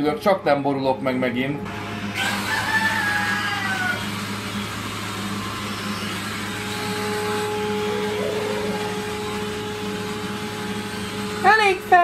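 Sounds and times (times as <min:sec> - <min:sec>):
toy drone propellers buzzing: 0:02.1 - 0:11.7
higher steady whine: 0:04.0 - 0:12.0.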